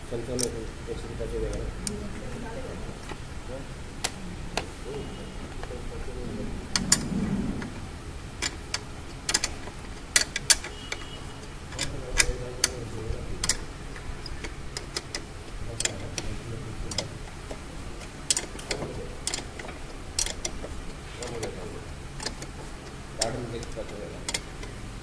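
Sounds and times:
hand wrench clicking: 0.4 - 0.6, 8.4 - 12.8, 13.4 - 16.3, 16.9 - 20.6, 22.2 - 22.5, 23.2 - 24.8.

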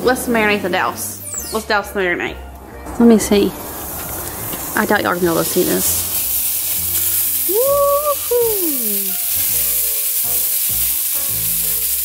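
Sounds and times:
marinade sizzling on grill: 2.5 - 12.0.

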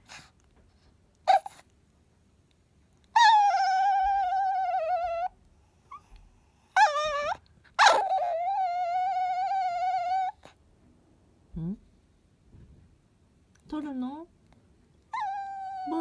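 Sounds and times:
dog whining: 1.2 - 1.7, 3.1 - 10.6, 15.1 - 16.0
dog short rising cry: 6.8 - 10.4.

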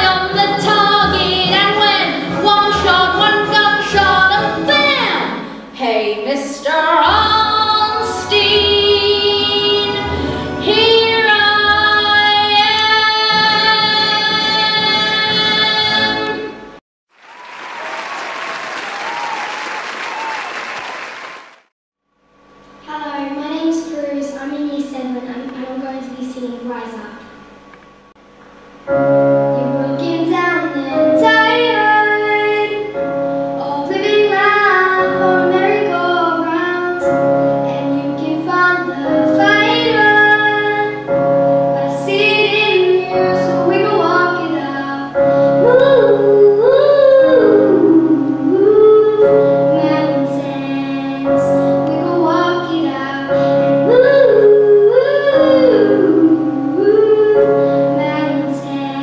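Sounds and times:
instrumental backing track: 0.0 - 5.8
child singing into microphone: 29.6 - 32.9, 33.6 - 41.0, 41.8 - 59.0.

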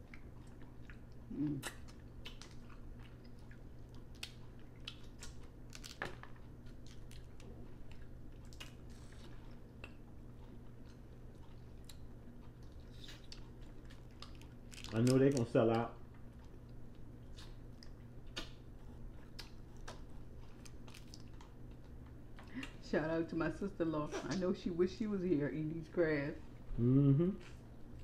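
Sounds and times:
person chewing: 0.0 - 15.5, 16.2 - 22.5
faint low hum: 0.0 - 28.0
crab shells cracking: 4.0 - 8.8, 13.0 - 15.8, 20.6 - 21.6.

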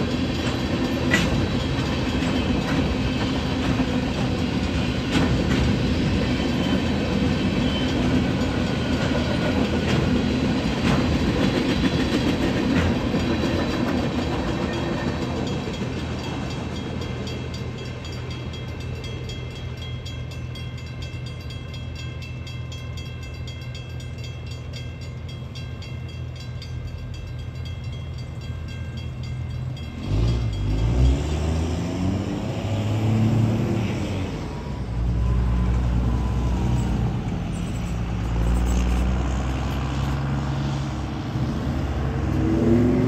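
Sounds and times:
train rumbling past: 0.0 - 43.0
crossing signal bell ringing: 6.2 - 9.6, 12.9 - 31.9
vehicle engines revving: 30.0 - 34.5, 35.4 - 43.0.

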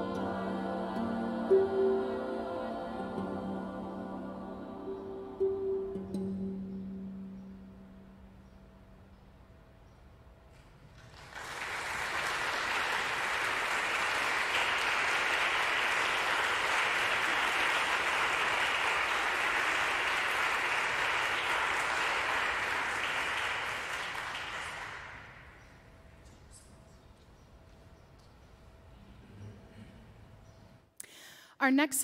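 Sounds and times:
audience applause: 10.9 - 25.5.

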